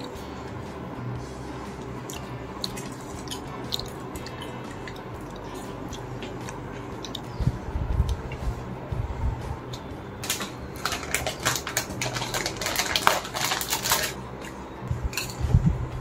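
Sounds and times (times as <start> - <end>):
chip packet crinkling: 10.2 - 14.2.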